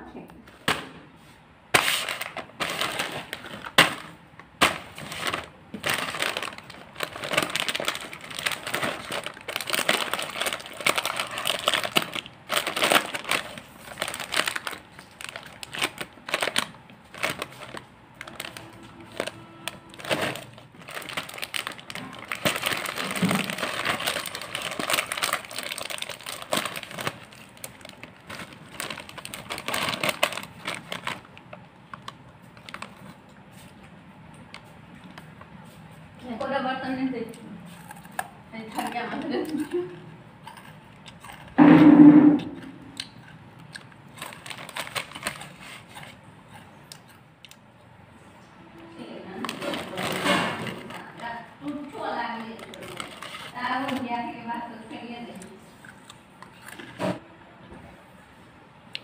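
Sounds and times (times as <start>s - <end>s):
snack packet crinkling: 1.8s - 33.8s, 43.0s - 47.6s, 49.4s - 54.4s.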